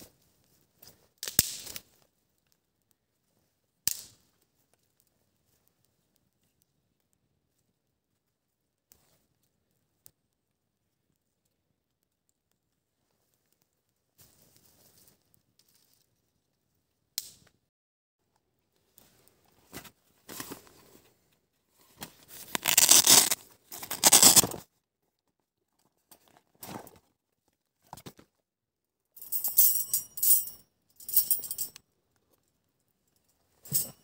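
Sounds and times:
hook-and-loop flap ripped open: 22.4s - 24.6s.

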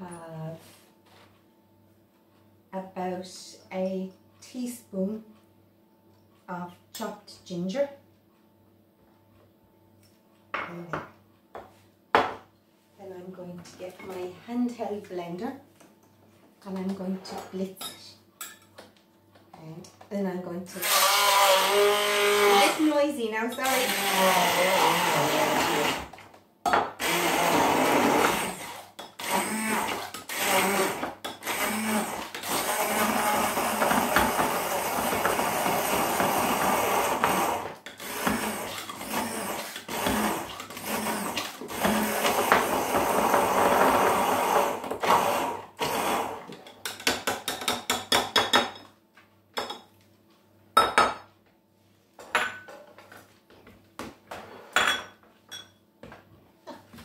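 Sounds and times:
stick blender blending: 20.7s - 23.0s, 23.6s - 26.2s, 27.0s - 46.6s.

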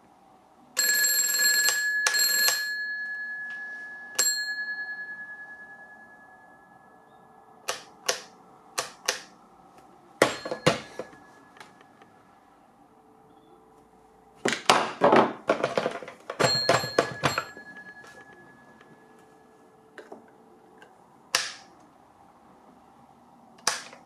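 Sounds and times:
telephone bell ringing: 0.8s - 7.4s, 10.2s - 11.6s, 16.4s - 19.6s.

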